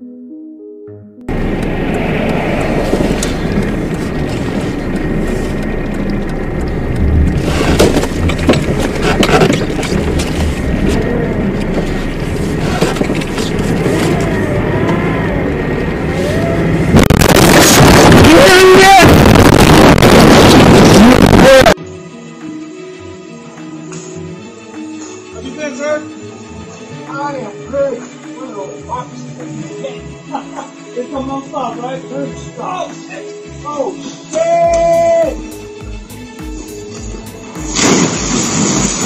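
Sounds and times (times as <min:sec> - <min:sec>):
car engine and tyre noise: 0:01.3 - 0:21.8
loud car crash: 0:16.9 - 0:21.8, 0:37.6 - 0:39.0.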